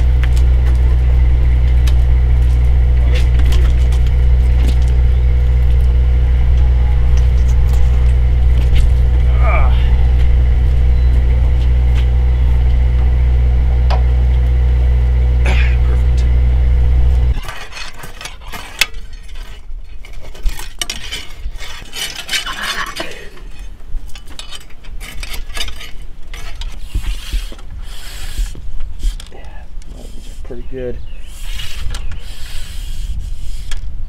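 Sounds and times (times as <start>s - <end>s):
low engine-like drone: 0.0s - 17.4s
metallic clinks and scrapes: 17.4s - 26.8s.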